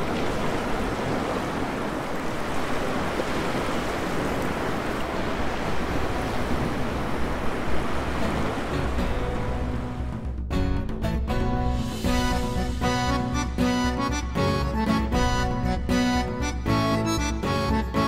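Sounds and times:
surf washing up a beach: 0:00.0 - 0:10.0.

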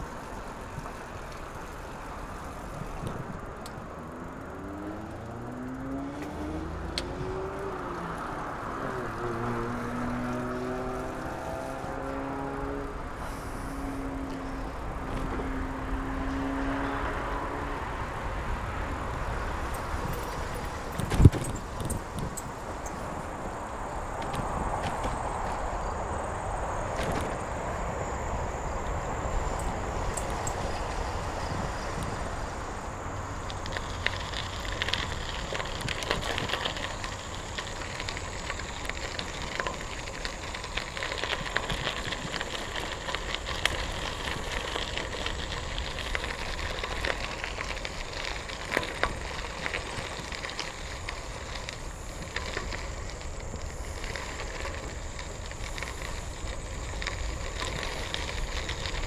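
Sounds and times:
bicycle tyres crunching on gravel: 0:00.0 - 0:59.0
loose stones clicking: 0:33.3 - 0:59.0.

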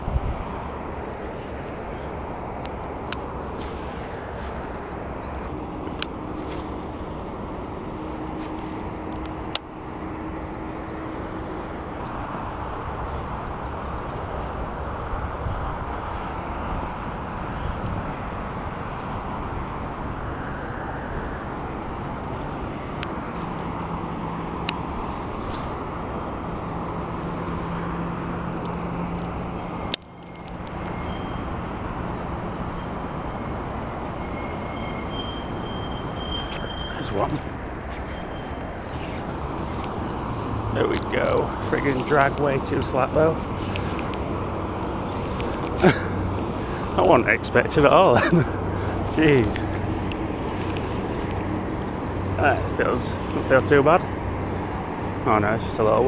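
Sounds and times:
distant road traffic rushing: 0:00.0 - 0:56.0
faint engine hum: 0:00.0 - 0:56.0
sharp clicks: 0:27.4 - 0:31.0.

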